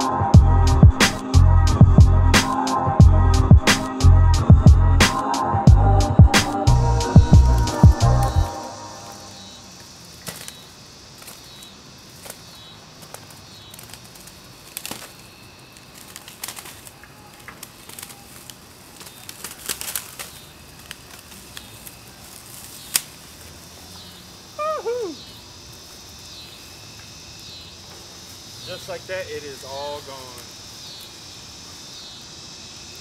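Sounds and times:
plastic wrap rustling and crackling: 9.1s - 24.3s.

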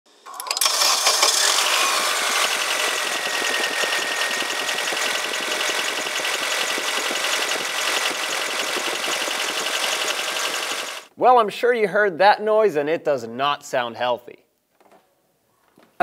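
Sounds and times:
car engine idling: 0.6s - 11.1s
fast valve ticking: 0.6s - 11.1s.

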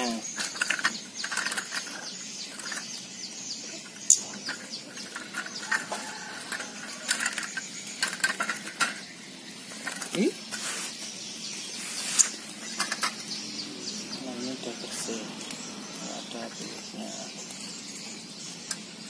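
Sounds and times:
wire bird cage clinking and rattling: 0.0s - 3.0s, 3.8s - 10.3s, 12.5s - 13.4s.

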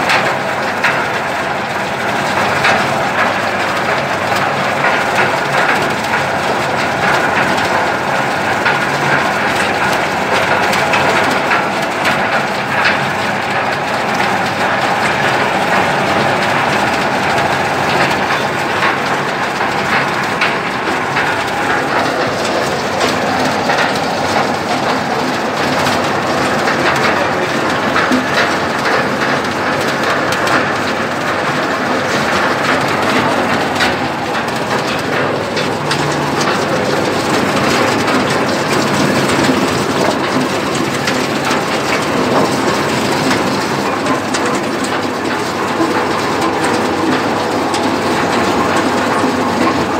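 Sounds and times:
de-husking machine rattling: 0.0s - 49.9s.

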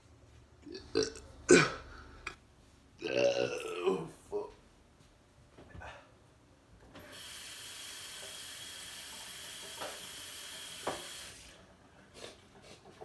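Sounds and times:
running water hiss: 7.0s - 11.6s.

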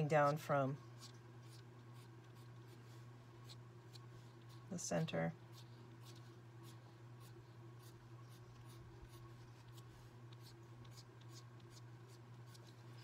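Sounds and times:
pencil scratching on paper: 0.0s - 13.0s.

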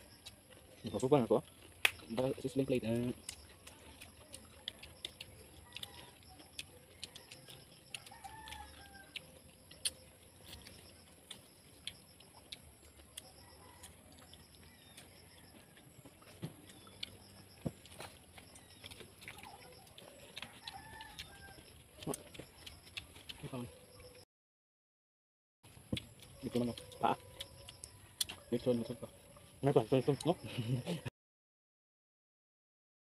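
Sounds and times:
people chewing and lip-smacking: 0.0s - 24.2s, 25.6s - 31.1s
chicken clucking: 2.2s - 11.4s, 12.2s - 24.2s.

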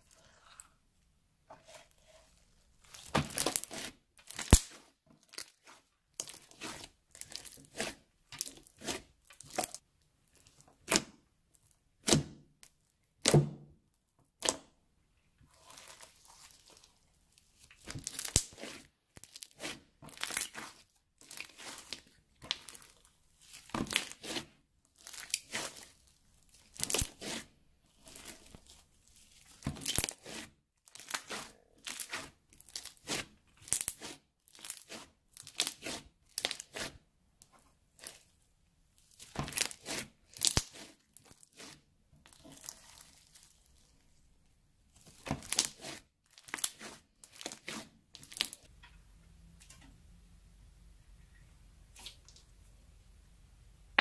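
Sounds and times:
crunchy slime crackling and popping: 2.8s - 9.8s, 15.6s - 27.4s, 28.0s - 36.9s, 39.0s - 44.2s, 44.9s - 48.7s.

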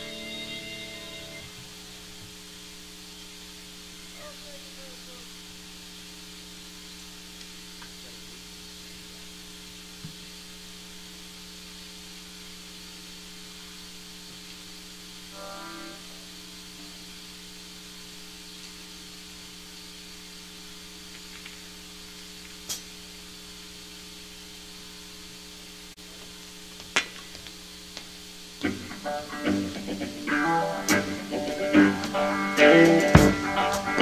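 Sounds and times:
rock band playing: 0.0s - 1.5s, 28.6s - 34.0s
amplifier electrical hum: 0.0s - 34.0s
drum hits: 30.9s - 34.0s.

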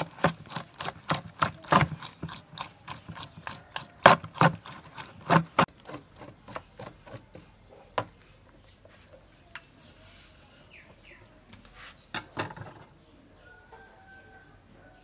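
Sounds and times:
metal spoon scraping fish roe: 0.0s - 5.7s.

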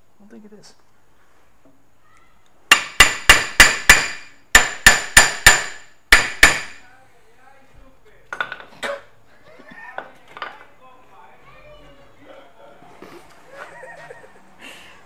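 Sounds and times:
hammer striking metal: 2.7s - 6.8s.

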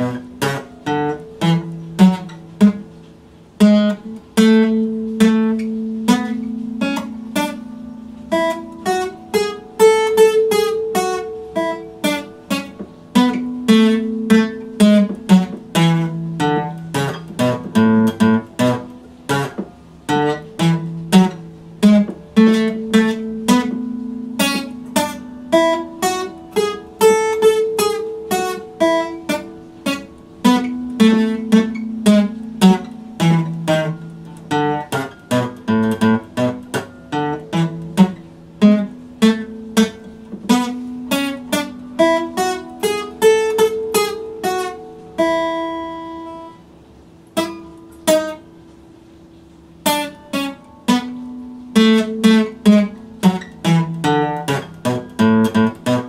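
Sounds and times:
acoustic guitar strummed and picked: 0.0s - 56.0s.

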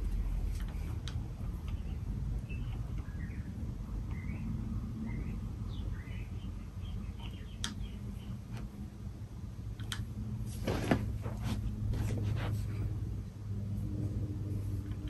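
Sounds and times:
ceiling fan motor hum: 0.0s - 15.0s
faint high chirps: 1.8s - 8.4s.

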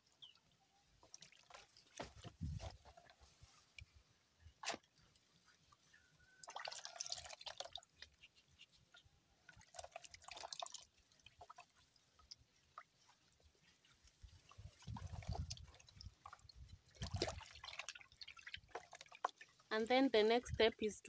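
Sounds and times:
water splashing in a basin: 0.9s - 2.4s, 6.3s - 8.3s, 9.5s - 20.7s
water dripping: 6.2s - 8.2s, 9.4s - 20.7s.

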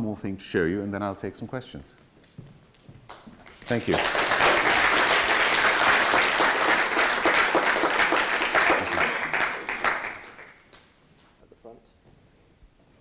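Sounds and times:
audience applauding: 3.1s - 10.9s.

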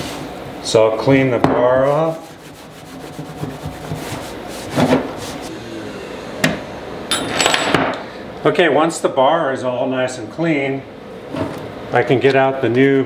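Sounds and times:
rag rubbing steel bar: 1.8s - 5.4s.

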